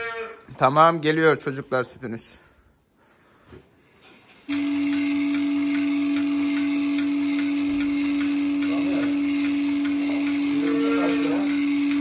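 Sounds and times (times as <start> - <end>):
vacuum pump motor humming: 4.5 - 12.0
pulsator ticking: 4.8 - 12.0.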